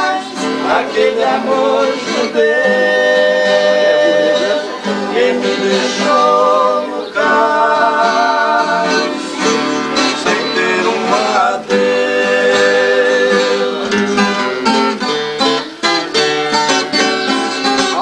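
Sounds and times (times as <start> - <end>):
acoustic guitars plucked and strummed: 0.0 - 18.0.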